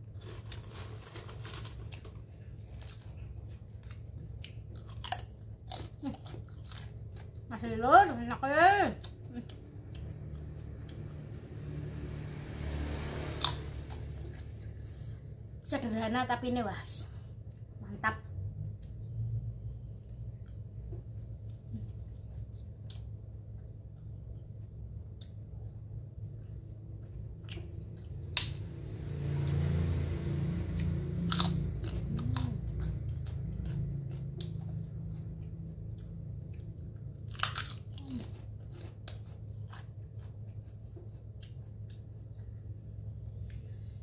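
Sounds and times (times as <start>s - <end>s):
low steady hum: 0.0s - 44.0s
person chewing: 0.2s - 7.5s, 9.0s - 11.4s, 30.8s - 44.0s.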